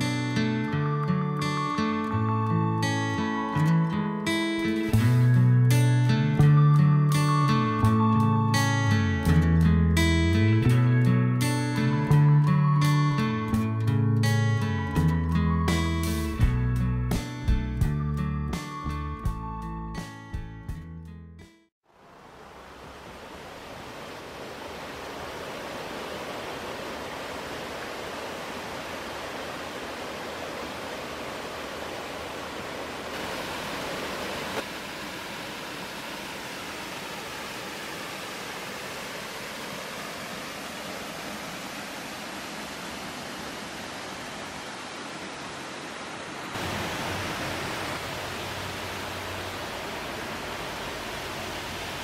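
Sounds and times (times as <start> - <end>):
waterfall rushing: 21.9 - 52.0.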